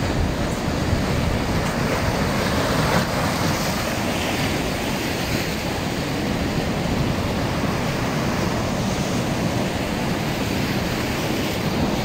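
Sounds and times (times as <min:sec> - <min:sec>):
ocean surf: 0:00.0 - 0:12.0
wind buffeting microphone: 0:00.0 - 0:12.0.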